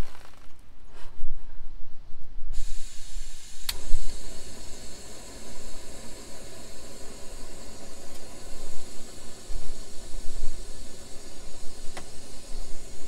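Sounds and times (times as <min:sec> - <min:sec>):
gas stove hissing: 0:02.5 - 0:13.0
stove igniter click: 0:03.6 - 0:04.3.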